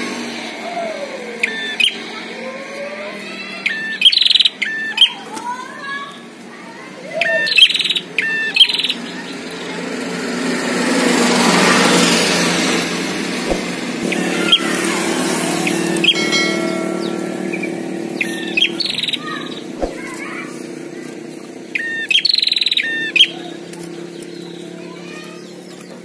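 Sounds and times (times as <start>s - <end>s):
birds chirping rapidly: 0.6s - 26.0s
broad rushing noise: 9.1s - 21.8s.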